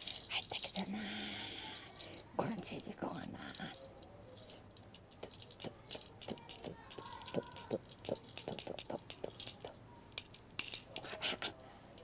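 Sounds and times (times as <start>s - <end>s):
small hard objects clicking in hands: 0.0s - 12.0s.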